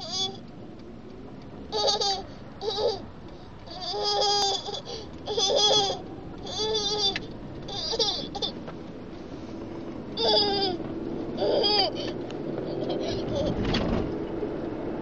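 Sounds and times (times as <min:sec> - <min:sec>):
toddler laughing: 0:01.7 - 0:03.1, 0:03.7 - 0:08.6, 0:10.1 - 0:13.8.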